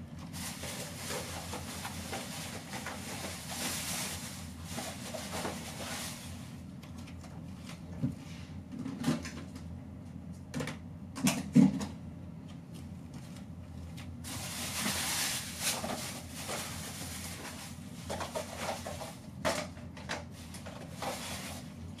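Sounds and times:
plastic containers clattering: 0:00.3 - 0:06.2, 0:14.3 - 0:21.6.

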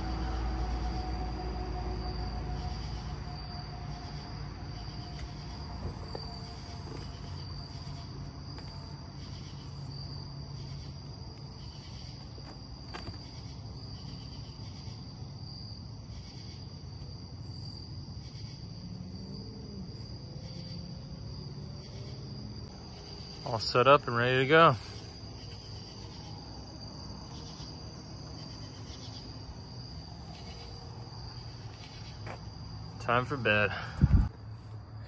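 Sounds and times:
low steady rumble: 0:00.0 - 0:15.4
crickets chirping: 0:00.0 - 0:35.0.

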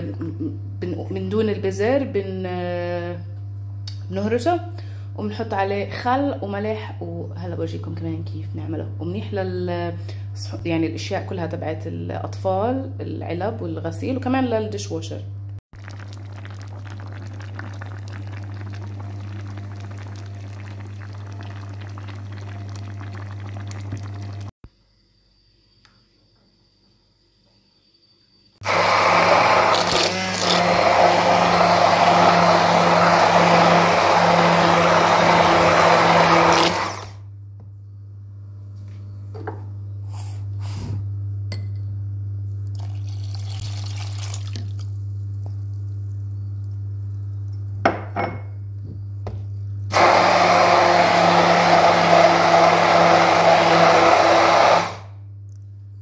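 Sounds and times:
hand blender running: 0:28.6 - 0:37.2, 0:49.9 - 0:55.1
steady low hum: 0:37.2 - 0:49.9, 0:55.1 - 0:56.0.

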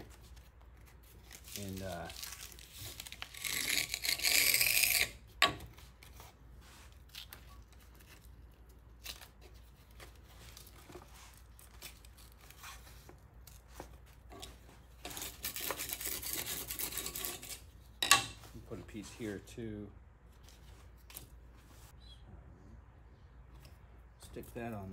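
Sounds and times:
sandpaper ripping: 0:01.2 - 0:05.2
faint handling rustles: 0:05.7 - 0:15.0, 0:18.4 - 0:19.6.

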